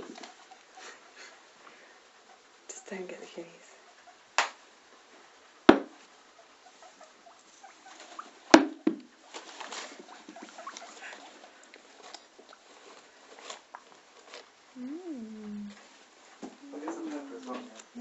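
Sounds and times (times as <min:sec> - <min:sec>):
sharp knocks: 0:05.7 - 0:06.0
guinea pig crunching carrot: 0:09.3 - 0:15.9.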